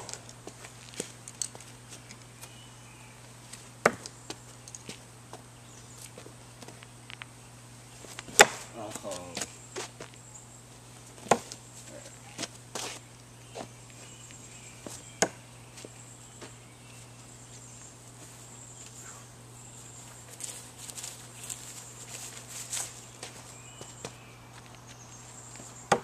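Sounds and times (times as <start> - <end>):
insects buzzing: 0.0 - 26.0
footsteps in grass: 7.9 - 15.1, 15.7 - 25.9.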